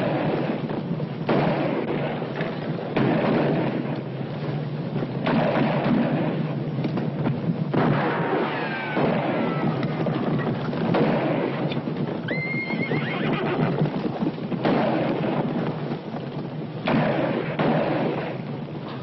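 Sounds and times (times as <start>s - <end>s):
echoing gunshots: 0.0s - 19.0s
horse whinnying: 12.2s - 13.9s.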